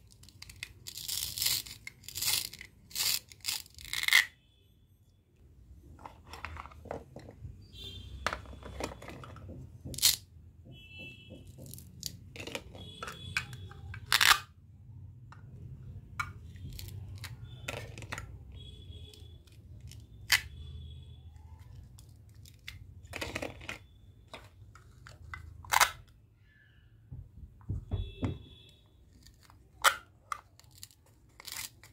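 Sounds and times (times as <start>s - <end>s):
plastic pieces clicking together: 0.0s - 4.3s, 11.6s - 14.5s, 29.2s - 31.9s.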